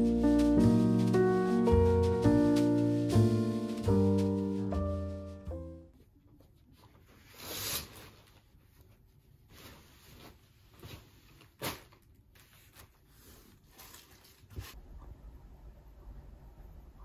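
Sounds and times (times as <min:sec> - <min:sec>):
cloth swish: 0:00.0 - 0:05.4
bedding rustling: 0:00.0 - 0:05.7.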